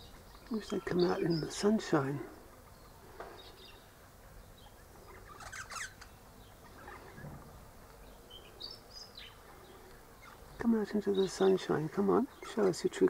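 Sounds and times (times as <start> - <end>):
parrot chattering and chirping: 4.5 - 7.3, 10.2 - 10.4.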